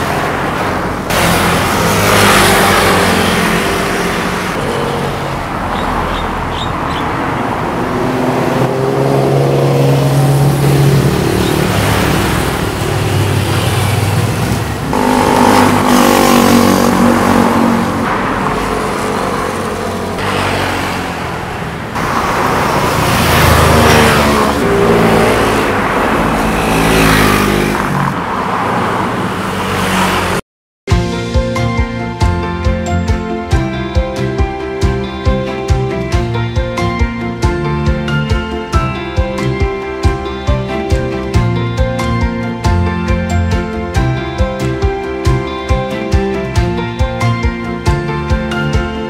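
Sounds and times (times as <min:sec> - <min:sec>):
motorcycles and scooters passing: 0:00.0 - 0:30.4.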